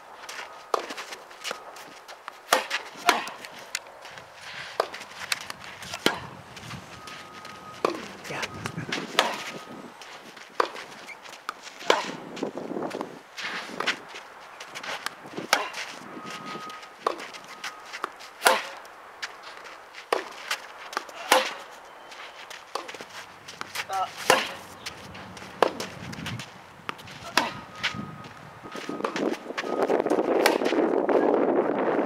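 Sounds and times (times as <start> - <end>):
footsteps on court: 0.1 - 31.2
tennis ball struck by racket: 2.4 - 3.8, 4.6 - 6.3, 7.4 - 9.6, 10.5 - 12.2, 17.0 - 18.8, 20.1 - 21.7, 22.7 - 26.2, 30.4 - 30.8
ball bouncing: 7.0 - 9.6, 10.6 - 12.2, 16.4 - 18.6, 22.7 - 27.9.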